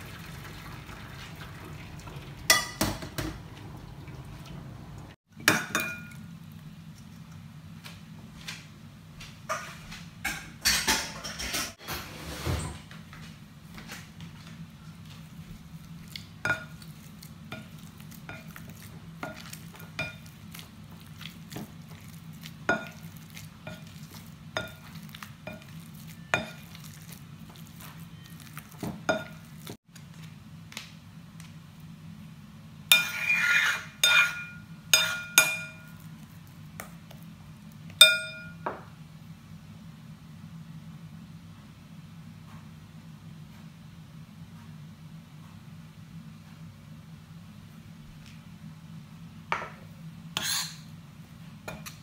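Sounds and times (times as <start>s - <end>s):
metal spoon clinking on bowl: 32.9s - 36.1s, 38.0s - 38.7s.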